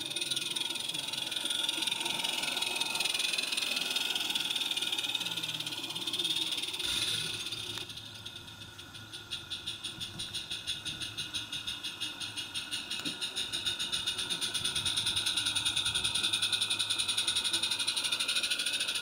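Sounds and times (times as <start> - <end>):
steam locomotive exhaust chuffs: 0.0 - 19.0
steam hiss: 6.8 - 7.8.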